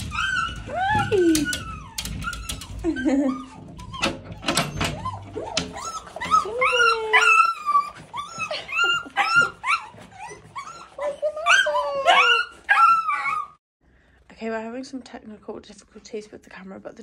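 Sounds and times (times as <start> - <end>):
small dogs whining and yipping: 0.0 - 13.6.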